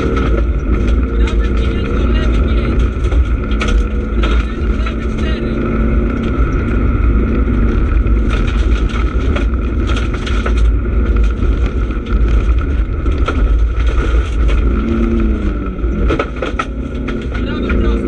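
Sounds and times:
rally car engine under load: 0:00.0 - 0:18.0
road and tyre rumble: 0:00.0 - 0:18.0
stones hitting the car: 0:07.8 - 0:18.0.

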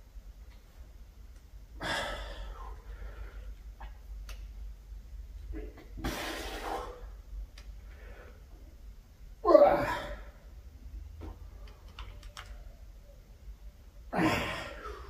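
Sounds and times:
man exhaling with effort: 0:01.8 - 0:03.2.

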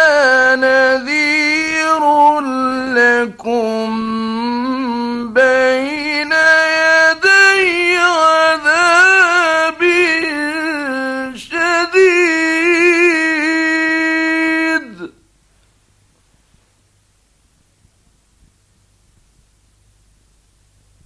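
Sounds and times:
man chanting recitation: 0:00.0 - 0:15.2.

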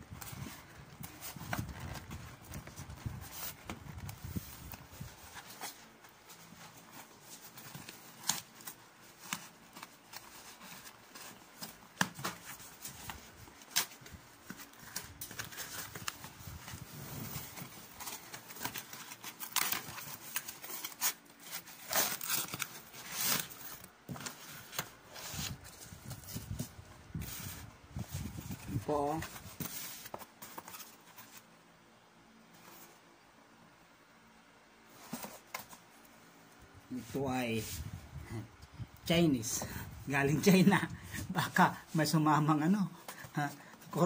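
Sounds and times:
plastic packaging crinkling: 0:07.4 - 0:24.4.

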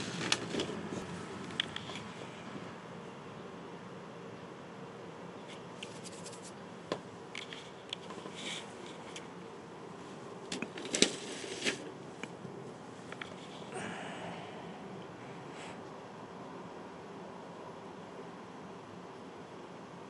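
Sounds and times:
steady low hum: 0:00.0 - 0:20.0
scratchy scrapes: 0:05.8 - 0:06.6.

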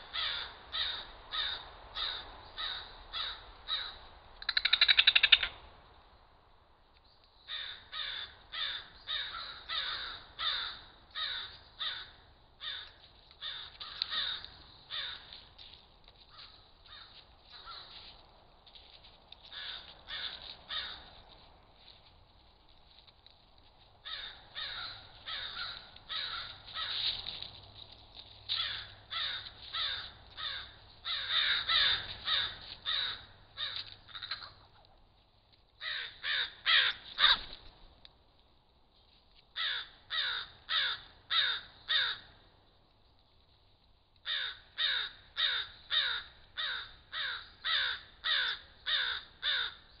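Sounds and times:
crows cawing: 0:00.0 - 0:05.6, 0:07.5 - 0:18.2, 0:19.4 - 0:21.4, 0:24.0 - 0:27.5, 0:28.5 - 0:34.8, 0:35.8 - 0:37.6, 0:39.6 - 0:42.4, 0:44.2 - 0:49.9.

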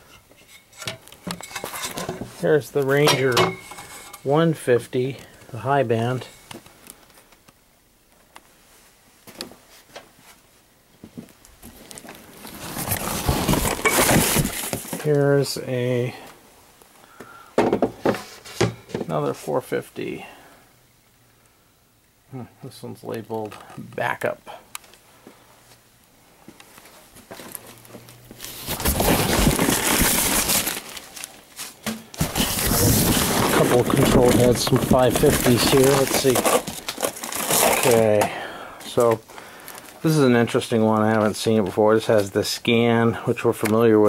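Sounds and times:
faint clicks and knocks of objects: 0:06.2 - 0:08.6, 0:23.0 - 0:29.0
crumpled newspaper rustling: 0:11.9 - 0:15.1, 0:28.4 - 0:41.4.

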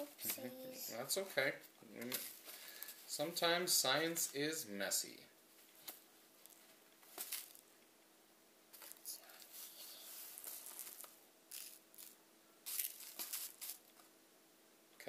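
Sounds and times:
faint hum: 0:00.0 - 0:15.0
plastic scoop in granules: 0:08.8 - 0:13.9.

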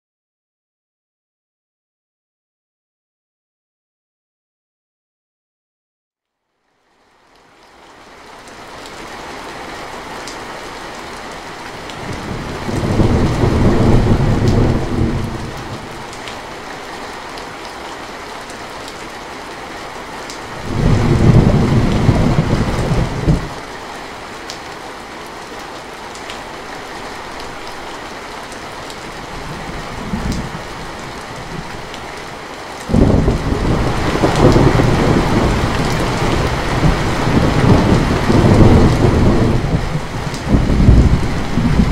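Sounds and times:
heavy rain on metal roof: 0:06.8 - 0:41.9
thunder rolling: 0:12.0 - 0:16.2, 0:20.6 - 0:23.6, 0:29.3 - 0:31.9, 0:32.9 - 0:41.9.

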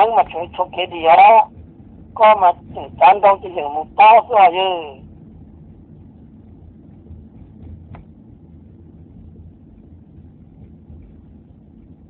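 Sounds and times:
person talking: 0:00.0 - 0:01.5, 0:02.2 - 0:05.0
low background rumble: 0:00.0 - 0:12.0.

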